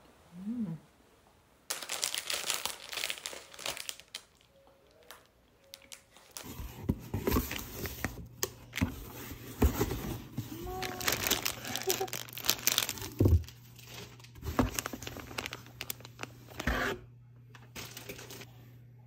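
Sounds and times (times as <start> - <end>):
packaging and cardboard rustling: 1.7 - 5.1, 5.7 - 17.0, 17.7 - 18.5
plastic bag crinkling: 1.7 - 6.8, 10.2 - 16.6, 17.7 - 18.5.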